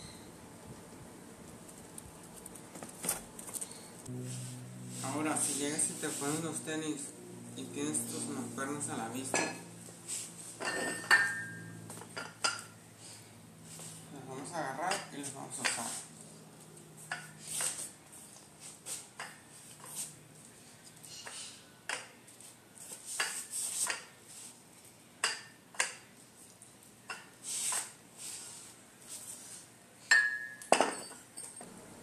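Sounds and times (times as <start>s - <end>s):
weight plates clinking: 10.6s - 11.6s.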